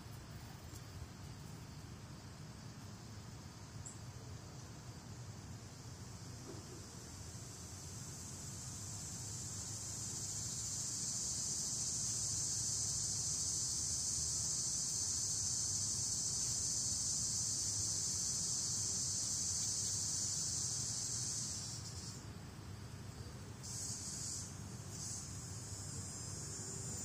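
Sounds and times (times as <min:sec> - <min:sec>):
high-pitched insect drone: 0:07.5 - 0:22.2, 0:23.6 - 0:27.0.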